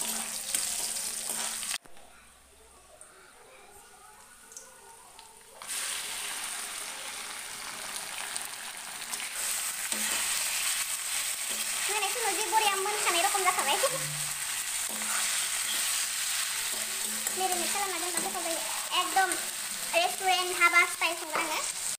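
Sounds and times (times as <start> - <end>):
chicken sizzling in oil: 0.0 - 1.8, 5.2 - 21.9
spatula stirring: 0.0 - 1.8, 9.0 - 20.0.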